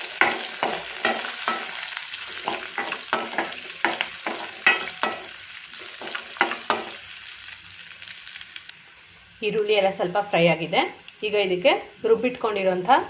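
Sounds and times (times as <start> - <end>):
steel spoon scraping a pan: 0.0 - 7.0
onions sizzling in oil: 0.0 - 13.0.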